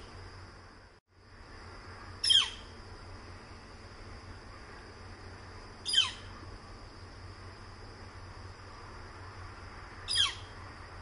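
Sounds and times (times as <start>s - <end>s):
bird calling: 2.2s - 2.8s, 5.8s - 6.5s, 10.1s - 10.6s.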